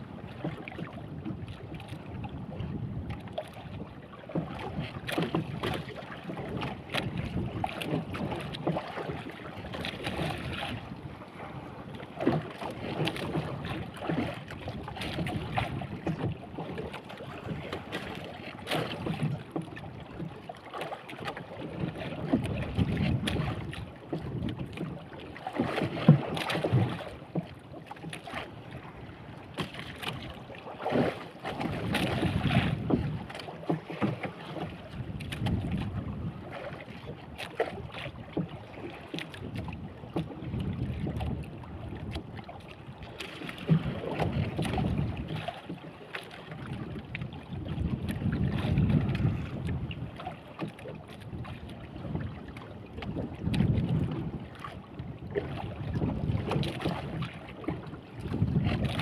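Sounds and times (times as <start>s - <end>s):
wind on microphone: 0.0s - 3.9s, 6.4s - 8.5s, 9.2s - 12.0s, 22.2s - 24.9s, 31.6s - 33.4s, 34.6s - 37.1s, 39.4s - 45.5s, 46.6s - 50.3s, 51.2s - 59.0s
water splashing against boat hull: 0.0s - 59.0s.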